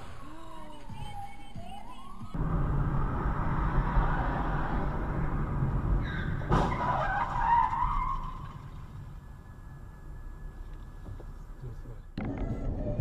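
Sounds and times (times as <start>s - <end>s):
road and engine rumble: 0.0s - 13.0s
tyres skidding with a squeal: 3.4s - 5.2s, 5.9s - 11.4s.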